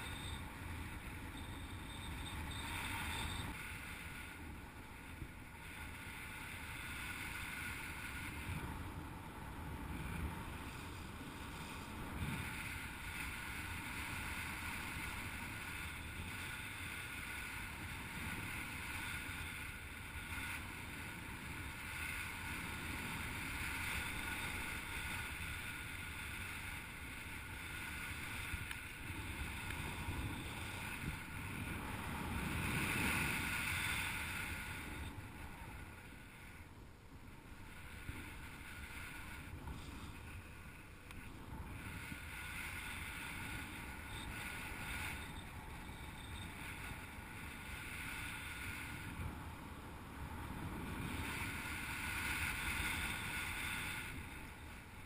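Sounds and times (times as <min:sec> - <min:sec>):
wind noise rushing: 0:28.1 - 0:36.5.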